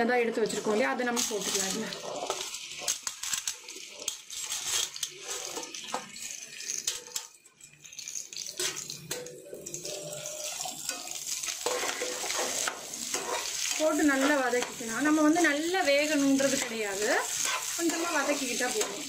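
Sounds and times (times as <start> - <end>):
vegetables sizzling in hot oil: 0.0 - 19.0
spatula stirring in pan: 1.4 - 7.2, 9.9 - 19.0.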